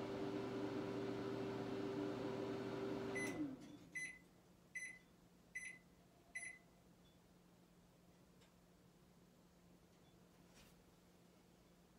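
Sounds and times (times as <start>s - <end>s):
microwave oven humming: 0.0s - 3.7s
microwave beeps: 3.1s - 4.2s, 4.8s - 6.6s.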